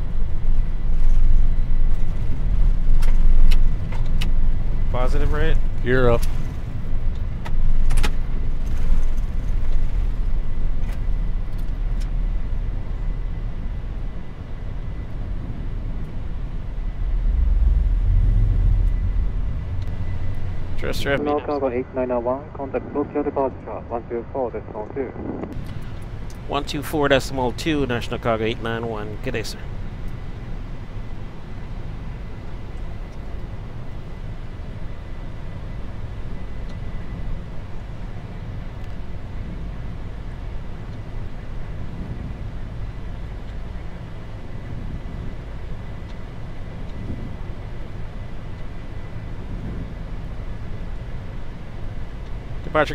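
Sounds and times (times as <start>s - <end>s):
low rumble of engines and airflow: 0.0s - 52.9s.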